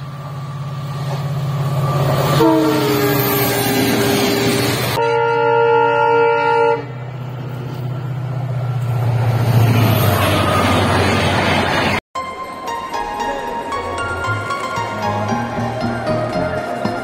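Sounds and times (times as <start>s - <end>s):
train wheel noise: 0.0s - 5.0s
locomotive horn blast: 2.4s - 7.0s.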